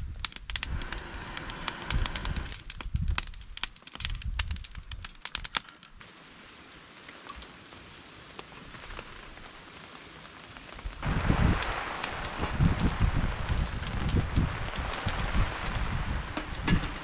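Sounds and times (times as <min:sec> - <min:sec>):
wood fire crackling and popping: 0:00.0 - 0:06.1, 0:07.0 - 0:17.0
faint hiss: 0:05.8 - 0:17.0.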